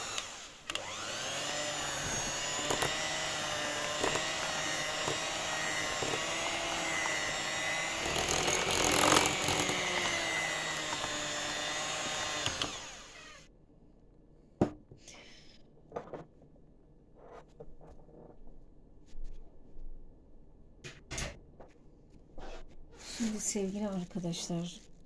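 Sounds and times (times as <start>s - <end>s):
electric mixer whipping batter: 0.0s - 13.5s.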